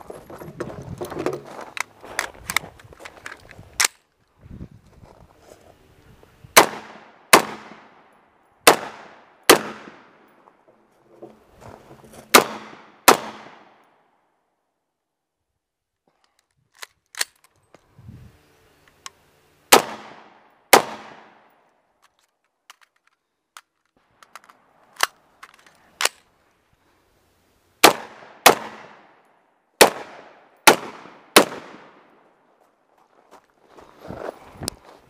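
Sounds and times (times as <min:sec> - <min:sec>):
rifle shots with echo: 0:06.6 - 0:10.3, 0:12.3 - 0:13.8, 0:19.7 - 0:21.5, 0:27.8 - 0:29.2, 0:29.8 - 0:32.2.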